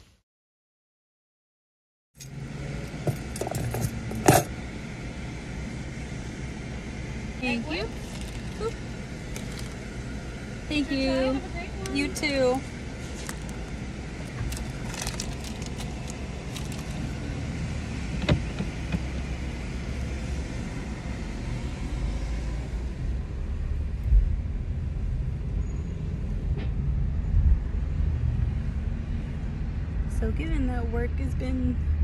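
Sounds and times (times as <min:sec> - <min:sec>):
car engine and road rumble: 0:02.2 - 0:32.0
clicks and handling noises: 0:14.3 - 0:17.0.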